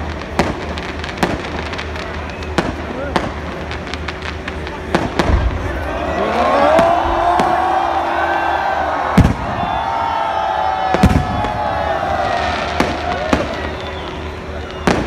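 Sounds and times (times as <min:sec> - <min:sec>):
faint firework pops: 0:00.0 - 0:05.8, 0:12.7 - 0:15.0
crowd noise: 0:00.0 - 0:15.0
firework bangs: 0:00.0 - 0:15.0
firework whistling: 0:00.0 - 0:15.0.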